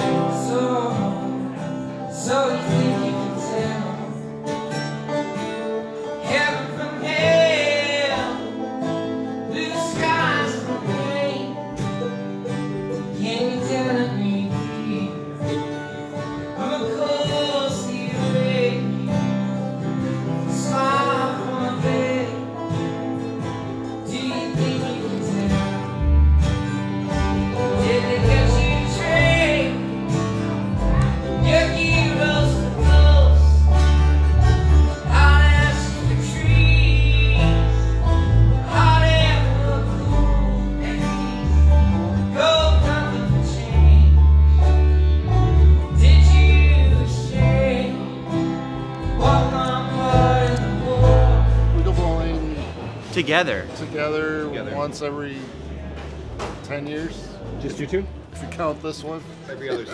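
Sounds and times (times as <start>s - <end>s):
bluegrass band playing: 0.0s - 59.9s
upright bass line: 24.1s - 53.7s.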